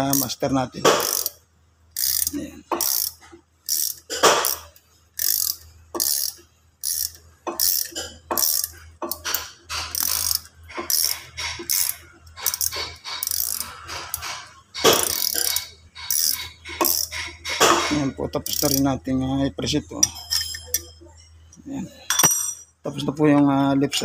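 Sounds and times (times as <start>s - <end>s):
metallic grating clicks: 2.0s - 18.9s.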